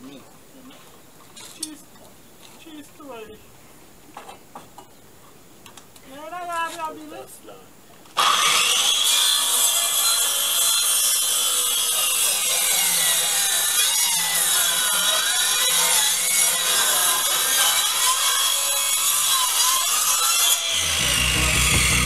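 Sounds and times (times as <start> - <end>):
power saw cutting wood: 8.2 - 22.0.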